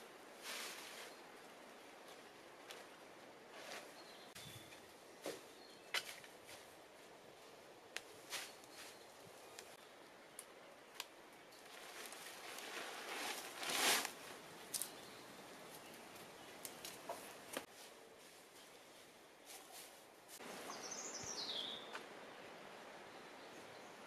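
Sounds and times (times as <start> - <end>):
plastic bag and straw rustling: 0.3 - 1.2, 11.6 - 15.0.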